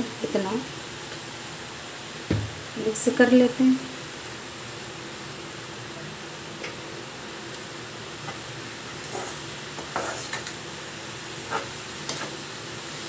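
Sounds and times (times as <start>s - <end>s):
food sizzling in a pan: 0.0s - 13.0s
metal spatula scraping a pan: 8.9s - 10.6s, 11.4s - 12.4s.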